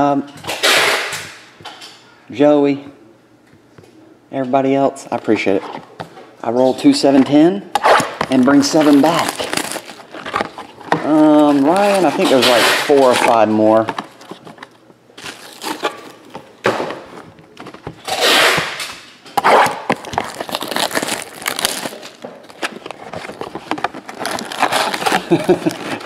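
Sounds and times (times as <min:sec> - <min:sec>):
foil packs crinkling: 0:08.2 - 0:16.5, 0:19.6 - 0:26.0.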